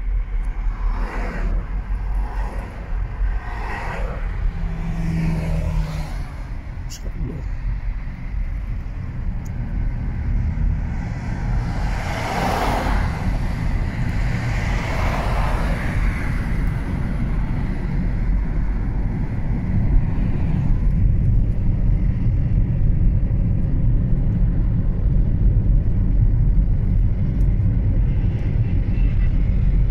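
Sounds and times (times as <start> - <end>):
moving car rumble: 0.0 - 29.9
rush of noise: 0.0 - 29.9.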